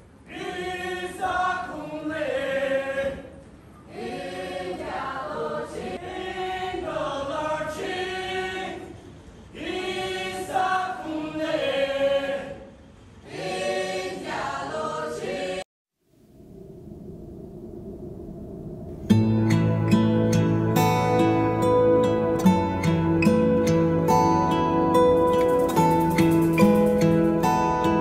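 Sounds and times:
group singing unaccompanied: 0.3 - 15.7.

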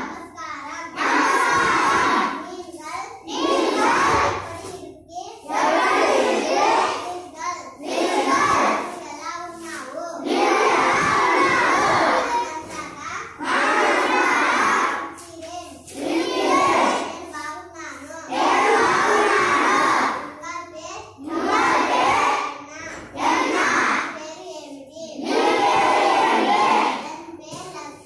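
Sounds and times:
girl reading out phrase: 0.0 - 5.7, 6.5 - 10.3, 16.9 - 18.4, 26.9 - 28.0
children reciting in unison: 0.0 - 28.0.

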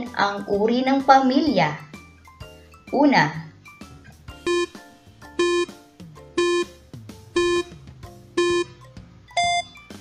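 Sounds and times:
soft background music: 0.0 - 10.0
countdown timer beeps: 4.3 - 9.8.

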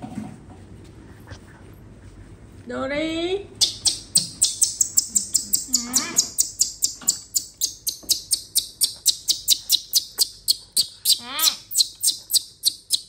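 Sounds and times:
baby monkey shrieking: 3.6 - 13.0.

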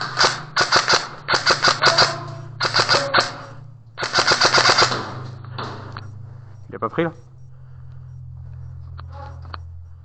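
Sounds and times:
airsoft gun firing bursts: 0.0 - 5.4.

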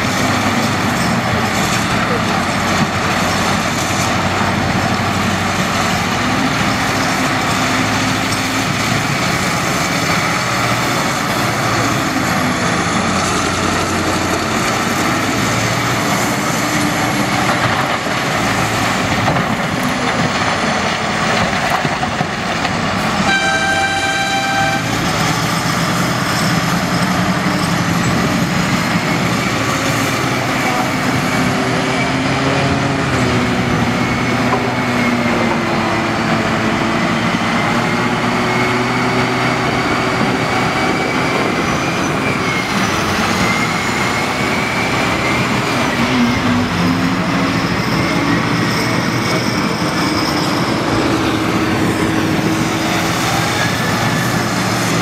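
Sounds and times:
heavy diesel engines under load: 0.0 - 55.0
vehicle horn blowing: 23.2 - 25.0.

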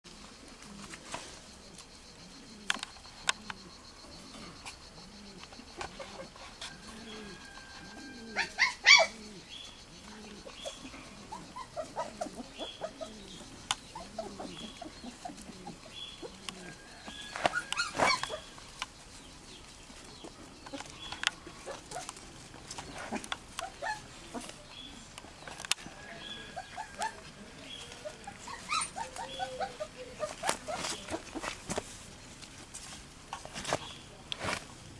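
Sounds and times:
puppies yipping and whining: 5.9 - 9.4, 10.4 - 18.6, 21.6 - 24.6, 25.8 - 31.7.

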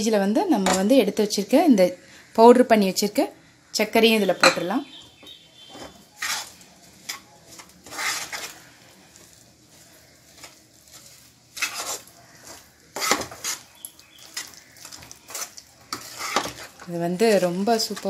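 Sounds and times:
steel spoon scraping a pan: 4.2 - 18.0.

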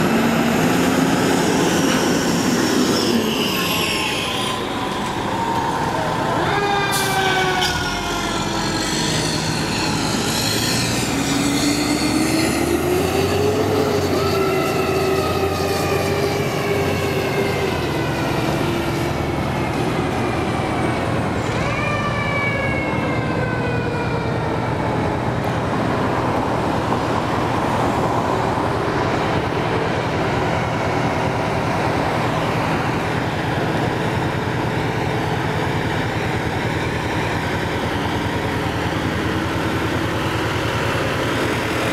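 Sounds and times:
mechanical siren wailing: 3.4 - 18.7, 21.4 - 25.2.

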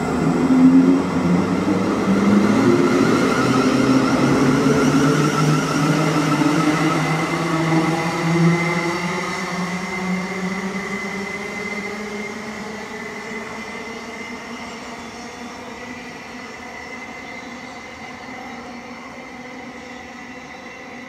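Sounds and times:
train motors humming and whining: 0.0 - 21.0.

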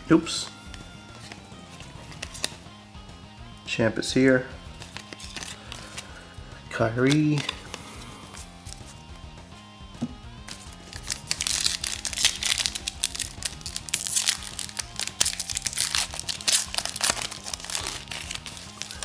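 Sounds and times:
faint background music: 0.0 - 19.0
foil wrapper crinkling and tearing: 4.9 - 6.1, 10.5 - 19.0.

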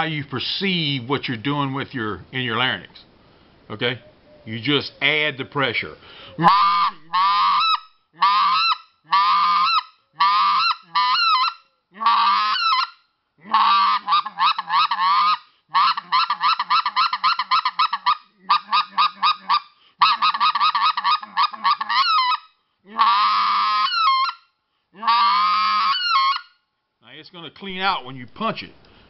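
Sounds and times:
goose call honks: 6.4 - 24.4, 25.0 - 26.4.

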